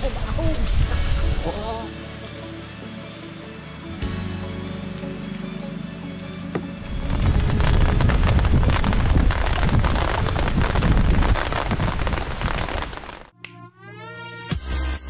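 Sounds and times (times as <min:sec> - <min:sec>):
background music: 0:00.0 - 0:09.2, 0:13.4 - 0:15.0
loud rumbling with heavy bass: 0:06.8 - 0:13.1.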